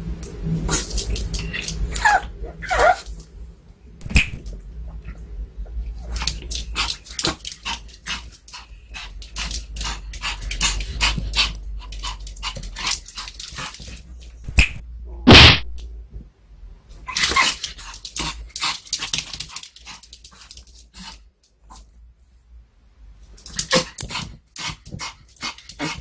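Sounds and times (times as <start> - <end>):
small dog whining and yipping: 1.9 - 3.1.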